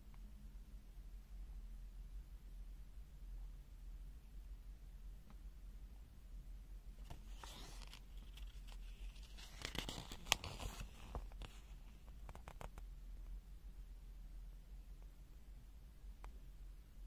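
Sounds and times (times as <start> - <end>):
rustling and crinkling: 7.0 - 12.8.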